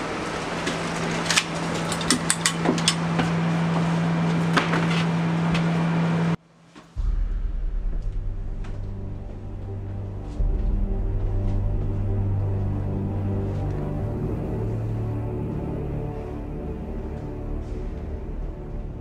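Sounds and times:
low dark music drone: 0:07.0 - 0:19.0.

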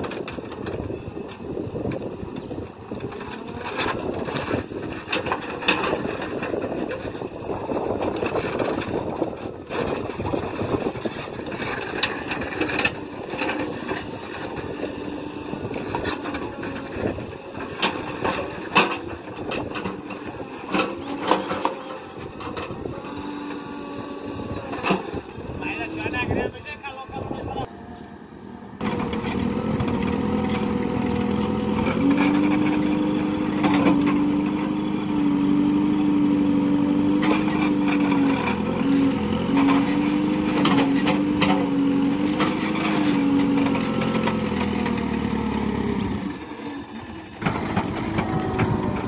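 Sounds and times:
backhoe diesel engine under load: 0:00.0 - 0:49.0.

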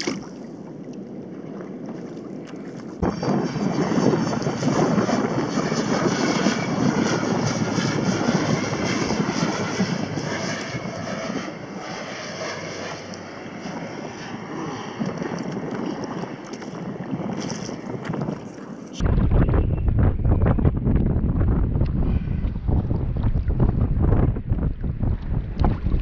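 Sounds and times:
airplane engine drone: 0:00.0 - 0:26.0.

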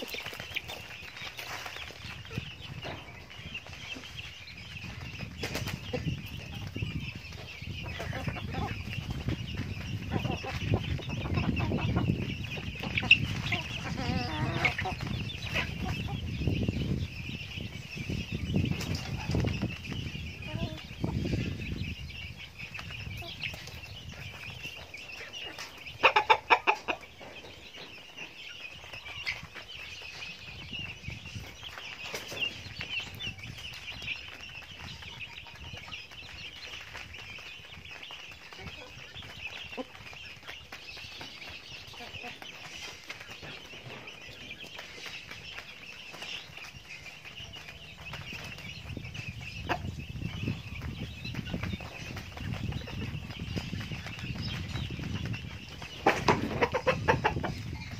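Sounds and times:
chickens clucking: 0:00.0 - 0:57.9.

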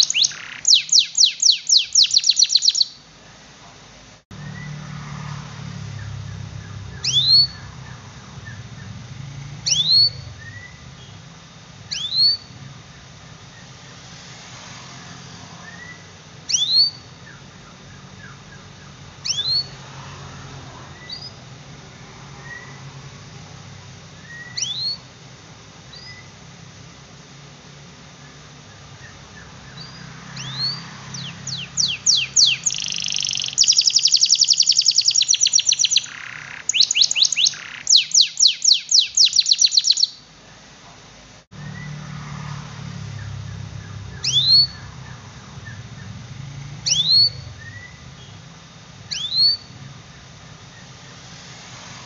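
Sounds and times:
canary calls: 0:00.0 - 0:03.1, 0:05.9 - 0:11.3, 0:11.9 - 0:12.8, 0:15.0 - 0:19.9, 0:24.2 - 0:25.1, 0:28.3 - 0:40.3, 0:43.1 - 0:46.2, 0:46.8 - 0:48.4, 0:49.1 - 0:51.2.

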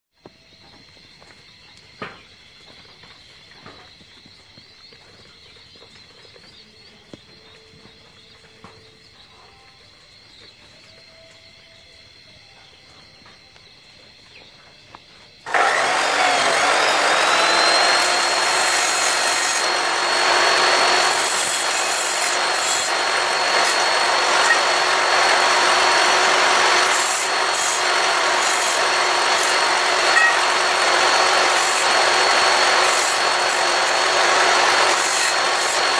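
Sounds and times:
cut-off saw motor whine: 0:15.4 - 0:35.9
saw disc grinding steel: 0:15.5 - 0:35.9.

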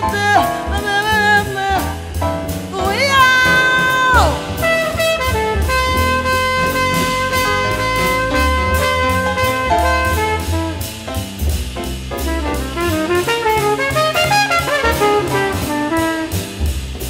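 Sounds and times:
bass line: 0:00.0 - 0:17.0
big band jazz: 0:00.0 - 0:17.0
drum kit beat: 0:00.0 - 0:17.0
horn holding long note: 0:04.5 - 0:10.6.

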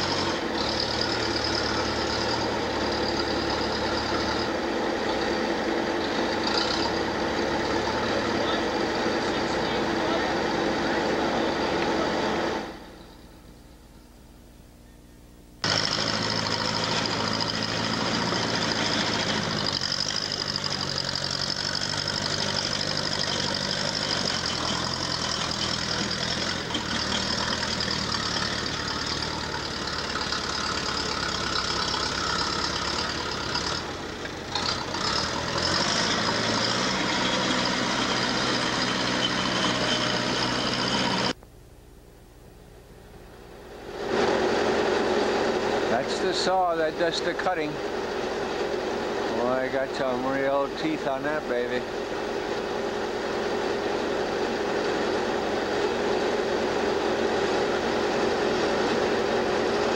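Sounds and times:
large engine running: 0:00.0 - 0:13.6, 0:15.6 - 0:41.4, 0:42.8 - 0:59.9.

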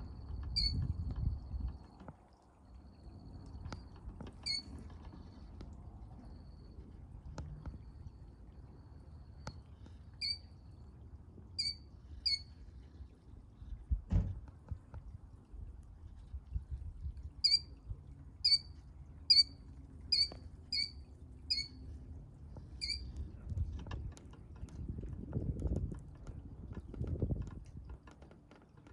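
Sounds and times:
shorebird chirping: 0:04.4 - 0:04.7, 0:10.2 - 0:10.5, 0:11.6 - 0:12.5, 0:17.4 - 0:17.8, 0:18.4 - 0:18.7, 0:19.3 - 0:21.8, 0:22.8 - 0:23.1
dull low thump: 0:13.9 - 0:14.8.

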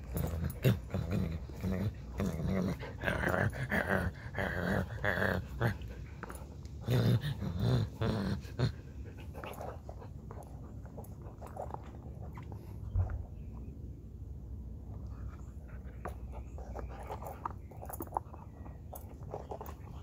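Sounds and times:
dog growling: 0:00.0 - 0:10.0
dog chewing a toy: 0:09.1 - 0:13.2, 0:15.7 - 0:20.0.

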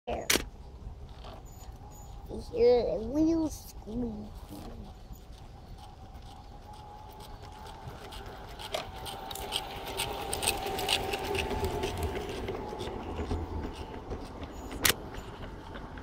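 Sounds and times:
train wheels rolling: 0:00.8 - 0:16.0
model train wheel squealing: 0:03.2 - 0:16.0
clicks on the track: 0:06.7 - 0:16.0.

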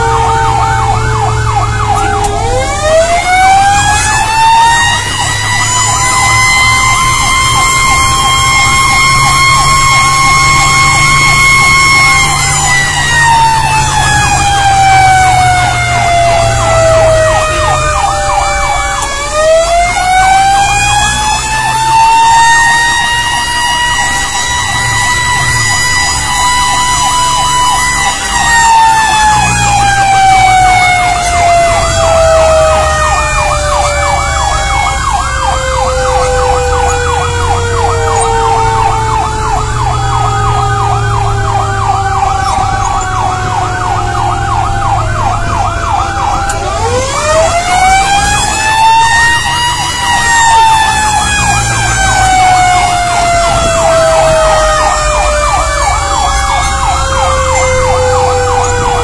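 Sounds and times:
fast warbling siren: 0:00.0 - 0:59.0
truck engine running: 0:00.0 - 0:59.0
wailing siren: 0:00.0 - 0:59.0.

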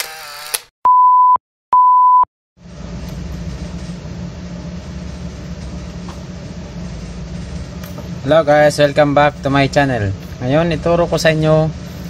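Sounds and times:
low hum with hiss: 0:02.6 - 0:12.0.

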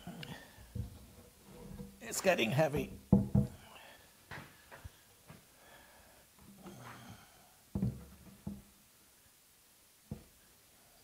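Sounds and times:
wooden board knocks and thumps: 0:02.8 - 0:03.6, 0:07.7 - 0:08.7.

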